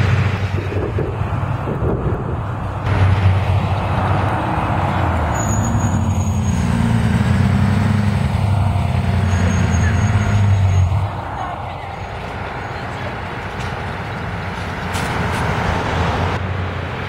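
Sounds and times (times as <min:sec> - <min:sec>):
bus diesel engine drone: 0:00.0 - 0:17.0.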